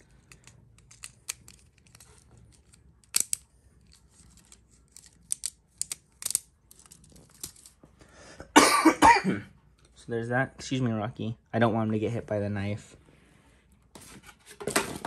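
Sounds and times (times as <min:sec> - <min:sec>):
small plastic parts clicking: 0:00.0 - 0:07.7.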